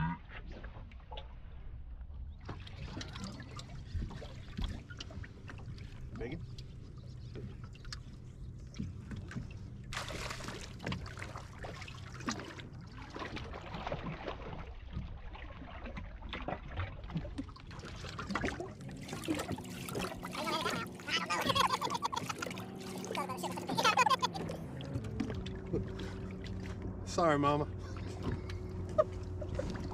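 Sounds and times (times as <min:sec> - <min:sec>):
water splashing and trickling: 0:00.4 - 0:29.9
low steady hum: 0:15.2 - 0:29.9.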